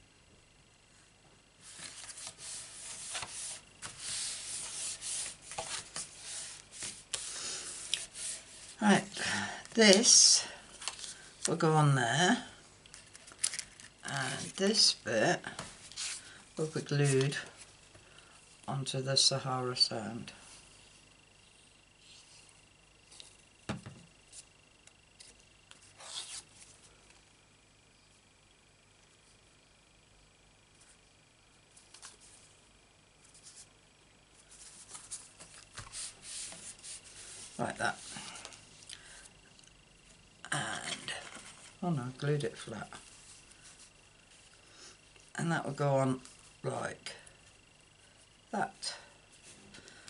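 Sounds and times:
hand rubbing card papery swish: 1.7s - 8.8s.

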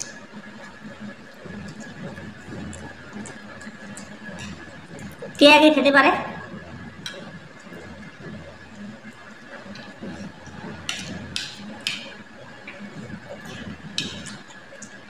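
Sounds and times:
faint high hum: 4.0s - 9.2s
cutlery scraping plates: 10.9s - 12.2s, 13.4s - 14.5s.

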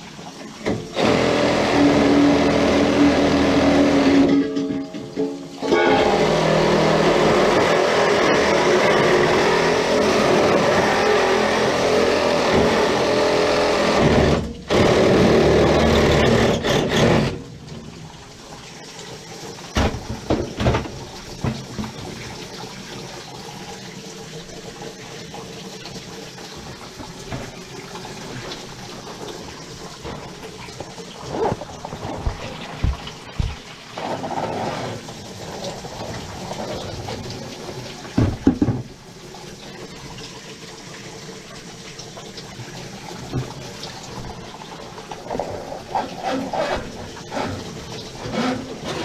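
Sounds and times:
reciprocating saw cutting pipe: 45.3s - 49.0s.

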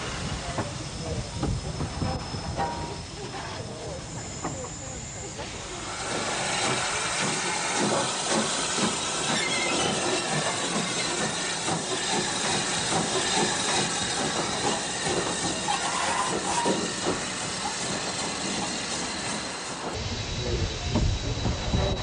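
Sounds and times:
steam hissing: 0.0s - 22.0s
train clattering on rails: 5.9s - 22.0s.

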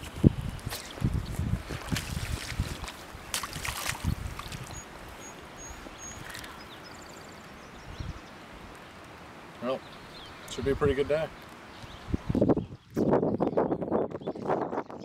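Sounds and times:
fish splashing in water: 1.8s - 4.8s.

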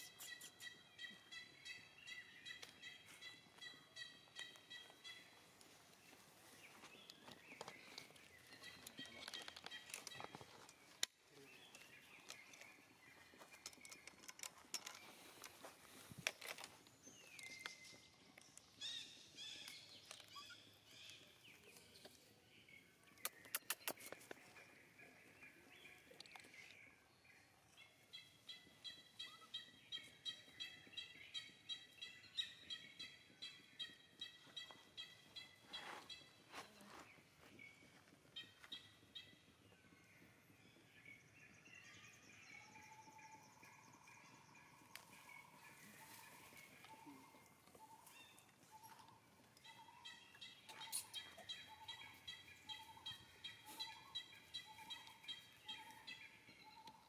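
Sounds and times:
high-pitched animal chirping: 0.0s - 1.8s
sharp clicks: 23.2s - 24.4s.

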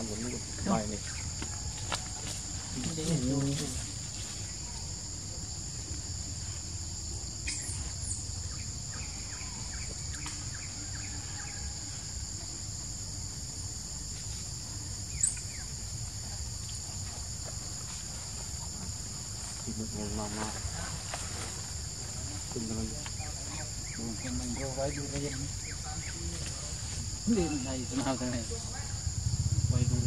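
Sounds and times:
high-pitched insect chorus: 0.0s - 30.0s
low rumble: 28.9s - 30.0s.

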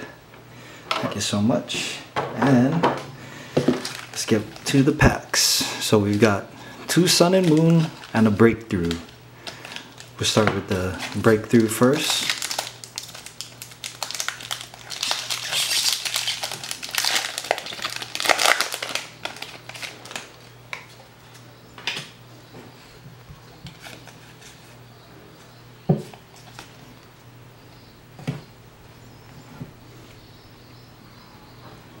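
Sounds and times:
foil wrapper crinkling: 3.7s - 21.4s
cards rustling: 3.7s - 21.5s.

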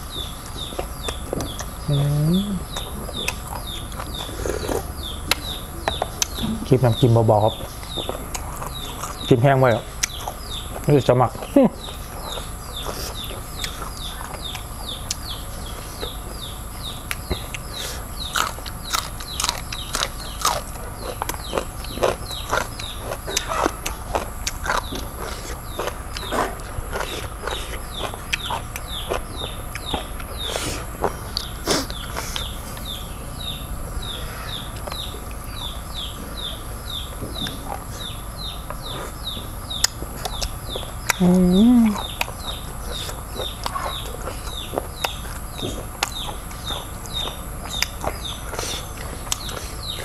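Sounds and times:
person sucking snails and chewing: 0.4s - 6.5s, 17.1s - 33.0s, 37.4s - 50.0s
mouth clicks and smacks: 0.4s - 6.7s, 10.0s - 15.4s, 38.7s - 50.0s.

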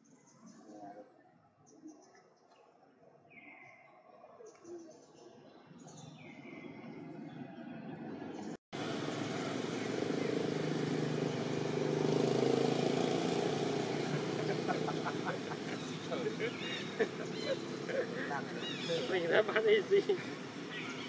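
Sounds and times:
bird chirps: 0.0s - 8.5s, 12.8s - 19.4s, 20.2s - 21.0s
low rumble of traffic: 5.0s - 21.0s
indistinct voices: 13.9s - 20.4s.

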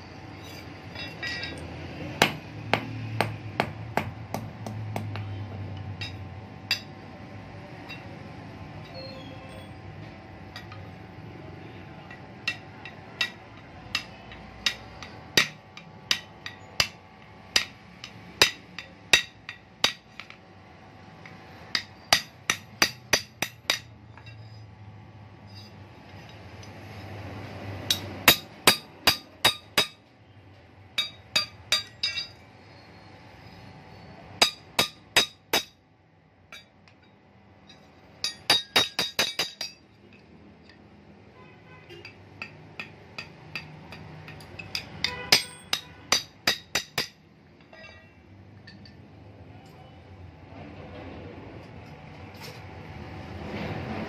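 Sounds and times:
hammer striking metal on anvil: 0.4s - 7.0s, 12.1s - 20.4s, 21.7s - 24.6s, 27.8s - 30.1s, 31.0s - 32.4s, 34.4s - 35.8s, 37.7s - 39.8s, 42.0s - 48.1s.

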